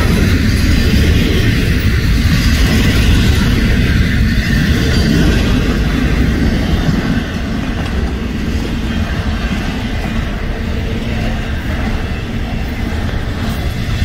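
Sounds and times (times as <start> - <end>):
freight train rumbling past: 0.0 - 14.0.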